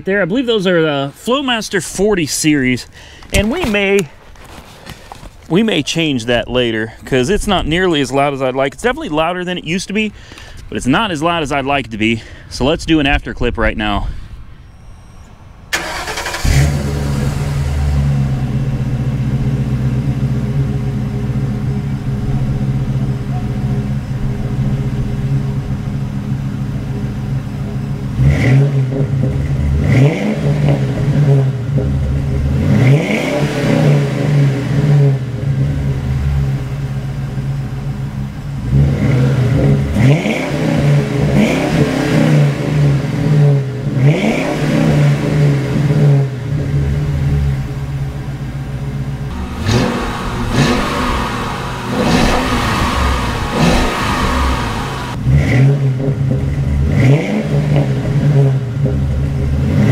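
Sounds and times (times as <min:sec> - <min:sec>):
car engine idling and revving: 0:14.4 - 0:59.9.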